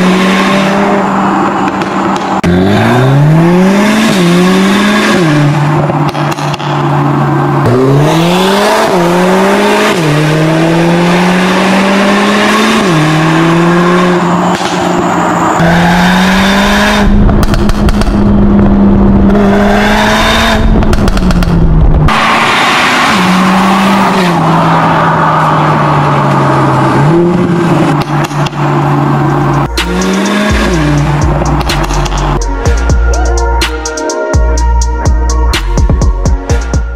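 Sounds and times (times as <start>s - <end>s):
car engine accelerating through gears: 0.0s - 32.5s
heavy low rush: 12.8s - 36.9s.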